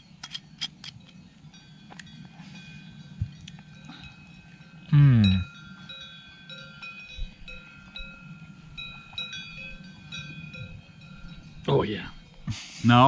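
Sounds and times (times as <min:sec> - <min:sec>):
cowbells clanking: 0:00.0 - 0:13.0.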